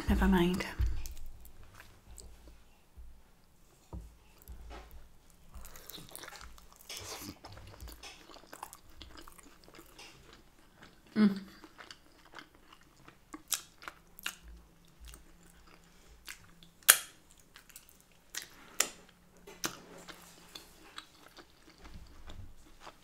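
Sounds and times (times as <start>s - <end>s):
person chewing food: 0.8s - 2.8s, 3.8s - 23.0s.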